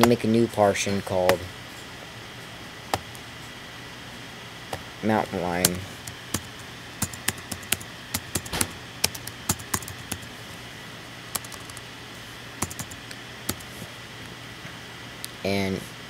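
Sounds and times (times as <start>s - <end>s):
faint steady hum: 0.0s - 16.0s
typing on computer keyboard: 5.6s - 10.3s, 11.4s - 11.8s, 12.6s - 13.7s.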